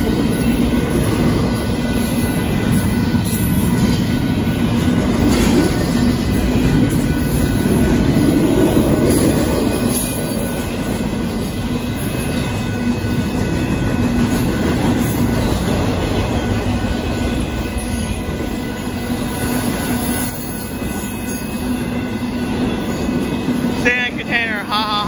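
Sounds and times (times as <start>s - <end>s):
train wheels rumbling on rails: 0.0s - 25.0s.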